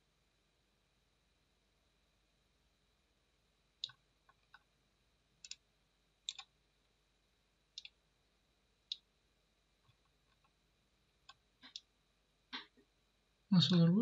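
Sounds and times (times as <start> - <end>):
computer mouse clicking: 3.8 - 4.7, 5.4 - 5.6, 6.2 - 6.5, 7.8 - 8.0, 11.2 - 11.9.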